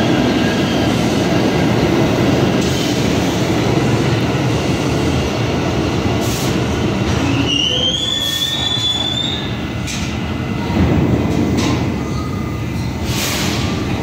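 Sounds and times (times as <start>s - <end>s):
subway cars rumbling: 0.0s - 14.0s
train wheels squealing: 7.1s - 9.6s.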